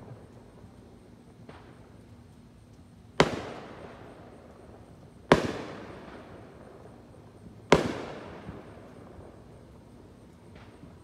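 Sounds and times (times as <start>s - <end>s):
fireworks bangs with echo: 3.2s - 3.9s, 5.3s - 6.2s, 7.7s - 8.7s.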